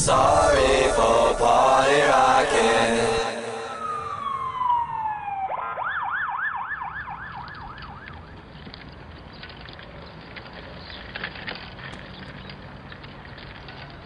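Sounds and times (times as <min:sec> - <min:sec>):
tone gliding downward: 0:00.0 - 0:08.1
ambulance siren yelping: 0:01.9 - 0:08.3.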